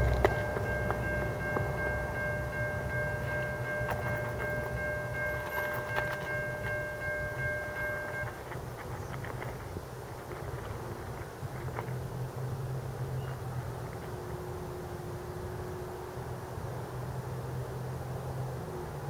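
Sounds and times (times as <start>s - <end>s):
low rumble: 0.0s - 8.4s
steel rail ringing hum: 0.0s - 8.6s.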